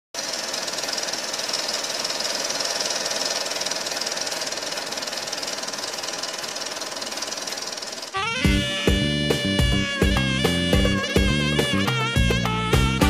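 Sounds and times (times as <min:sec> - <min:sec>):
film projector clattering: 0:00.2 - 0:08.2.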